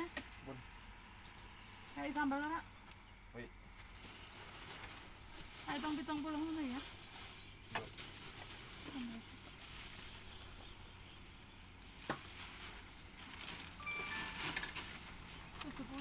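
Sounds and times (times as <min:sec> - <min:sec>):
plastic bags rustling: 0:00.0 - 0:02.5, 0:03.7 - 0:16.0
food handling noise: 0:11.7 - 0:15.8.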